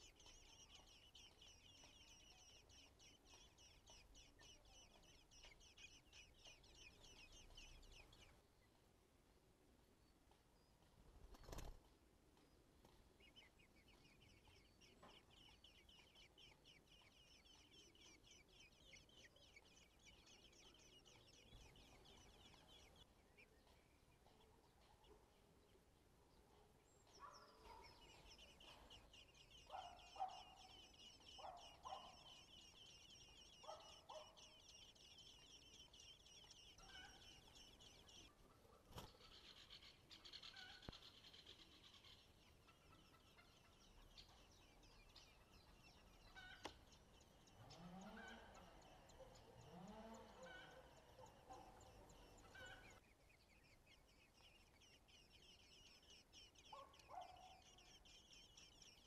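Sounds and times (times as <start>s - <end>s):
nestlings begging chatter: 0.0s - 8.4s, 13.2s - 24.4s, 27.0s - 59.0s
low bird calls: 27.1s - 59.0s.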